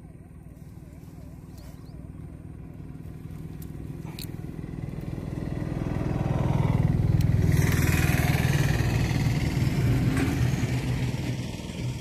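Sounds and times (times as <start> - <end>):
engine running close by: 0.0 - 12.0.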